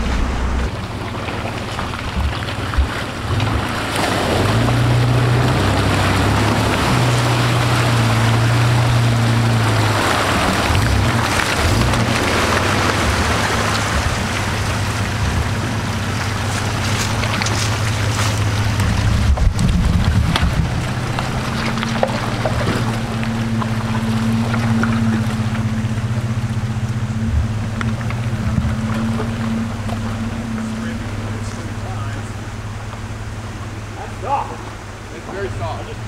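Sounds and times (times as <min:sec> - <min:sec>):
loud rushing noise: 0:00.0 - 0:01.0
truck engine running: 0:00.0 - 0:36.0.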